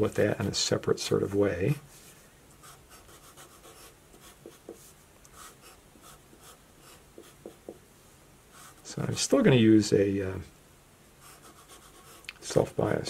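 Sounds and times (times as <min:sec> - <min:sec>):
marker scratching on paper: 0:02.6 - 0:07.8, 0:08.5 - 0:08.9, 0:11.2 - 0:12.7.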